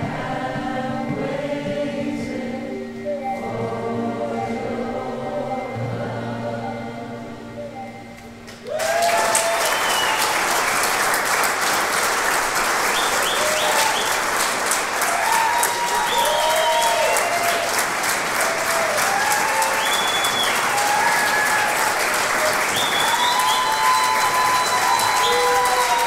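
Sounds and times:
cheers and whoops: 8.6s - 10.8s, 12.9s - 14.2s, 15.0s - 26.0s
audience applause: 8.6s - 26.0s.

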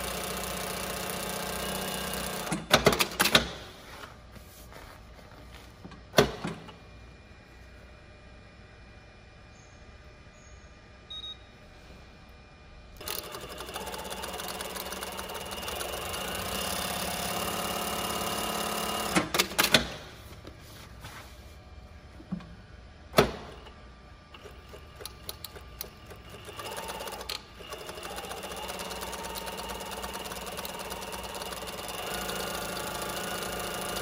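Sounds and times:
sewing machine sewing: 0.0s - 3.2s, 13.0s - 19.6s, 24.4s - 34.0s
short beeps: 11.1s - 11.5s.

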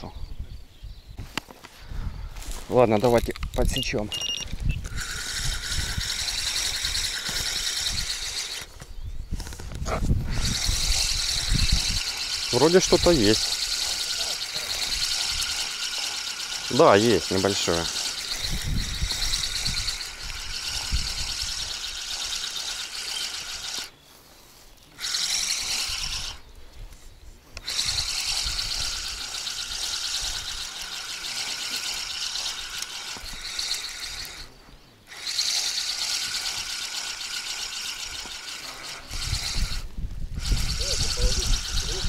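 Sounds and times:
fishing reel ratcheting whir: 4.8s - 8.7s, 10.3s - 23.9s, 25.0s - 26.5s, 27.6s - 34.5s, 35.1s - 42.0s.

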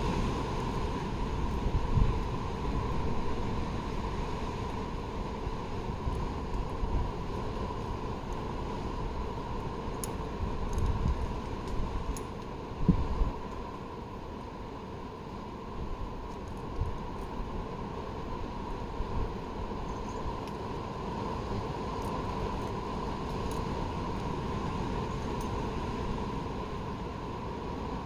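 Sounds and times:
wind buffeting microphone: 0.0s - 7.8s, 10.3s - 13.5s
faint steady hum: 0.0s - 28.0s.

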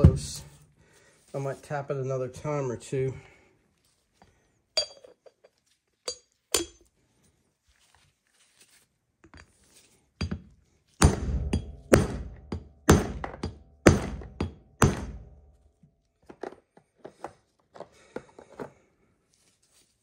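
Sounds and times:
small metal clinks: 4.8s - 6.9s.

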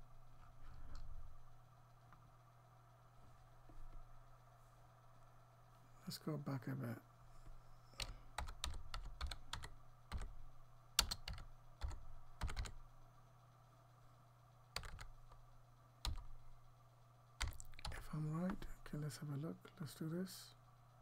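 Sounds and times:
steady low hum: 0.0s - 21.0s
typing on computer keyboard: 8.0s - 10.4s, 11.0s - 12.8s, 14.8s - 15.2s, 16.0s - 16.4s, 17.4s - 18.6s.

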